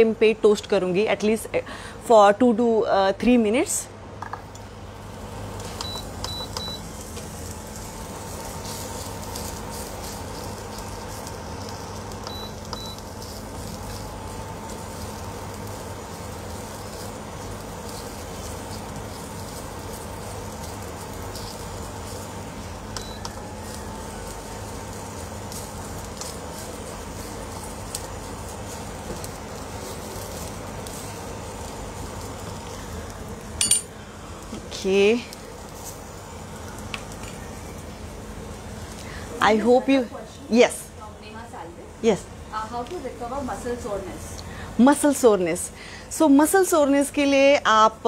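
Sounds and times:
steady hum: 0.0s - 48.0s
asparagus sizzling in a pan: 4.8s - 41.6s.

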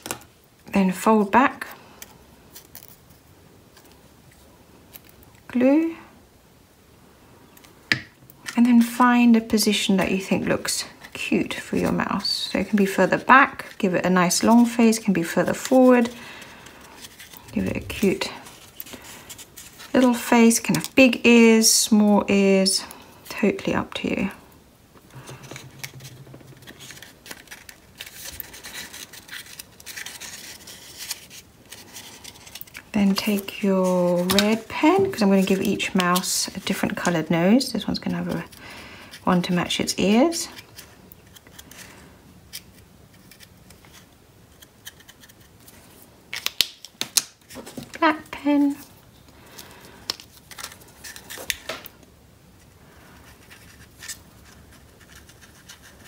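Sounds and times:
paper rustling and rubbing: 12.6s - 20.5s, 25.2s - 42.0s, 52.6s - 56.0s.

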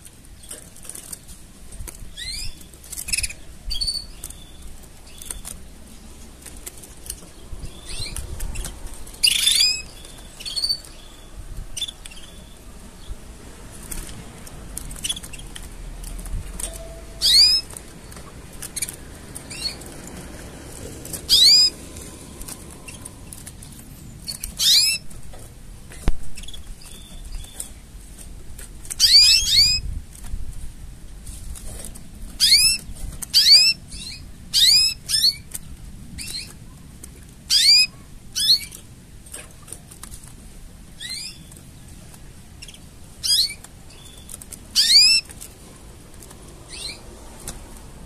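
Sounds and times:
canary chirping: 2.1s - 25.2s, 25.9s - 27.9s, 28.9s - 29.9s, 32.4s - 35.6s, 36.2s - 36.8s, 37.5s - 38.9s, 41.0s - 41.9s, 42.6s - 45.7s, 46.5s - 47.1s.

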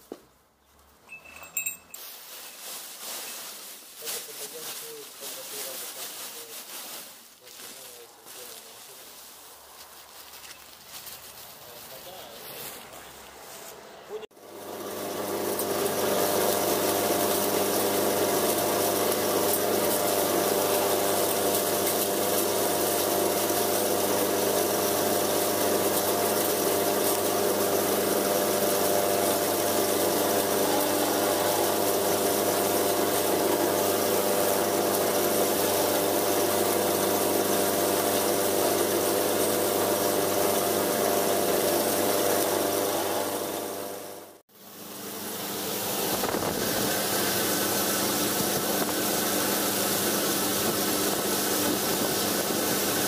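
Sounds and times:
grinder grinding wood shavings: 1.2s - 44.4s, 45.3s - 53.0s
motor hum: 14.4s - 53.0s.

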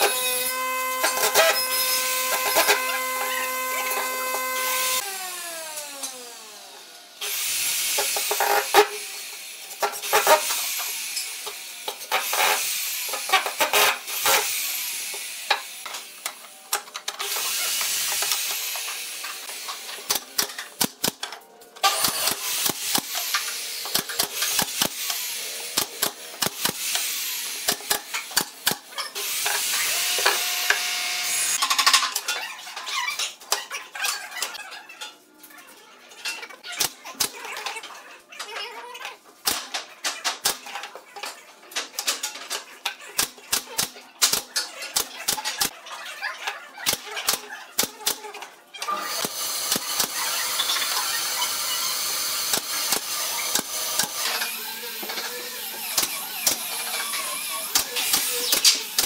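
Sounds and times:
impact driver driving screws: 49.1s - 54.5s
brad nailer firing: 52.0s - 54.4s.

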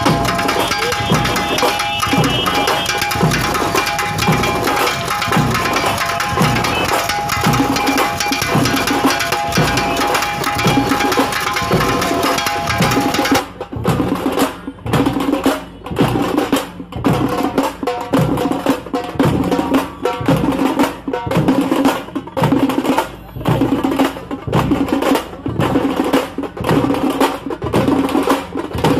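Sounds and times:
percussion-heavy music: 0.0s - 28.9s
steady drum beat: 0.0s - 28.9s.

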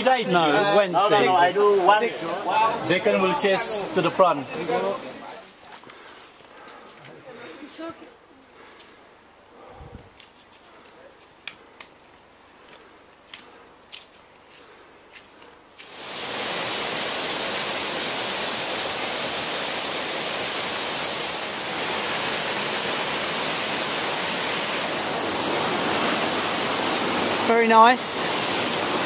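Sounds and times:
waterfall rushing over rocks: 0.0s - 5.4s, 15.8s - 29.0s.

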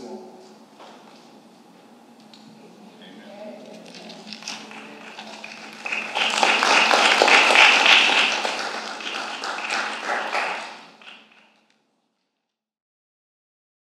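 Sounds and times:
crowd applauding: 3.9s - 11.7s.

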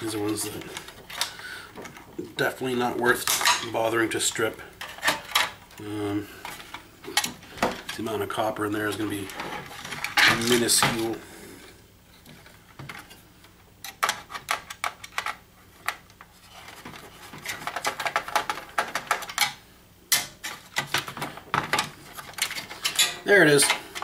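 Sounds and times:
plastic parts clicking and rattling: 0.0s - 2.3s, 13.8s - 24.0s.

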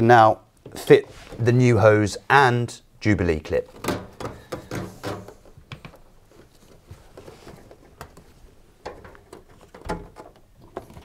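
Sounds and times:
faint handling rustling: 0.6s - 1.8s, 3.6s - 11.0s.

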